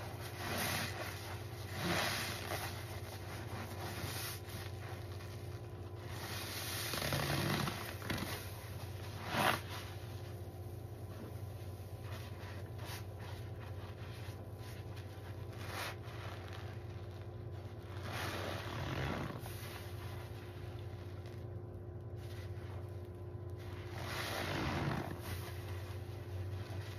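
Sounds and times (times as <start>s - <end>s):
sponges squelching in foam: 0.0s - 26.9s.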